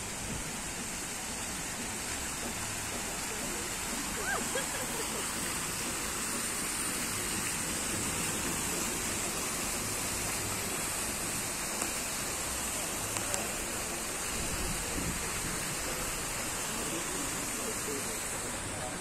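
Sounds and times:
fountain water splashing: 0:00.0 - 0:19.0.

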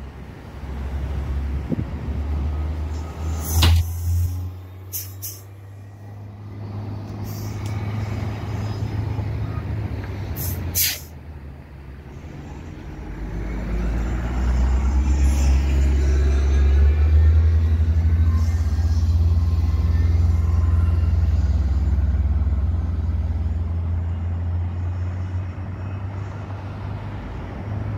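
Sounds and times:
bus engine rumble: 0:00.0 - 0:27.9
air-brake hisses: 0:03.2 - 0:05.5, 0:07.1 - 0:07.8, 0:10.4 - 0:11.1.

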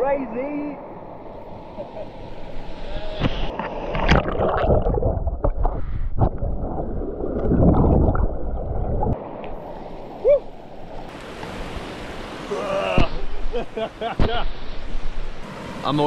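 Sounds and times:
muffled underwater churning water: 0:01.0 - 0:11.2
stream hissing: 0:09.2 - 0:16.0.

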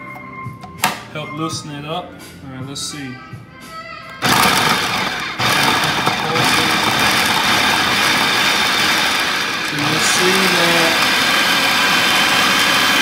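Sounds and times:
food processor chopping: 0:04.2 - 0:13.0.

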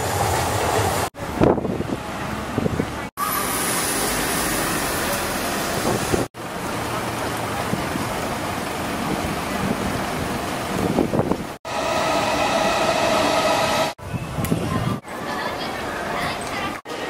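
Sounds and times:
traffic noise: 0:00.0 - 0:11.7
faint voices of passers-by: 0:14.0 - 0:17.0.

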